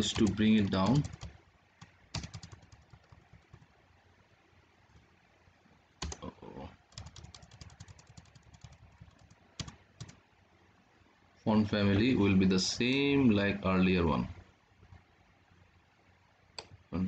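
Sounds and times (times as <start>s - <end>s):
computer keyboard clicking: 0.0s - 3.7s, 6.0s - 6.3s, 6.9s - 10.2s.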